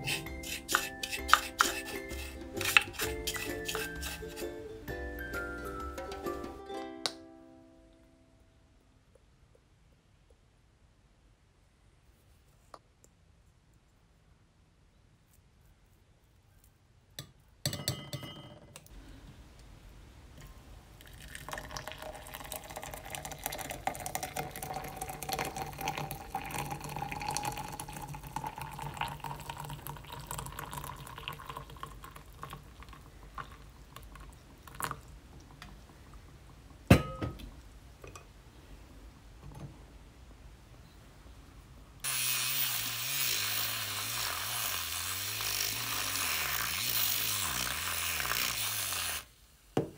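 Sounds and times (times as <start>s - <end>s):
hot water pouring into glass: 0.0s - 4.4s, 20.9s - 35.1s, 42.0s - 49.3s
spoon clattering against glass: 0.0s - 4.4s, 17.7s - 18.6s.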